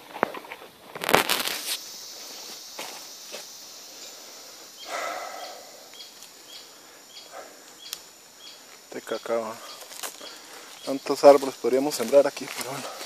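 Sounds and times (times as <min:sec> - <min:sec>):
steady high hiss: 0:00.0 - 0:13.0
footsteps in dry leaves: 0:09.6 - 0:13.0.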